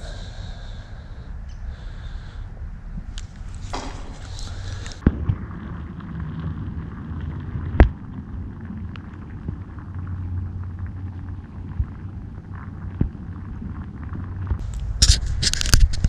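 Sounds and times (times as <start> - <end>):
muffled underwater rumble: 0.0 - 16.0
sharp knocks: 3.6 - 4.4.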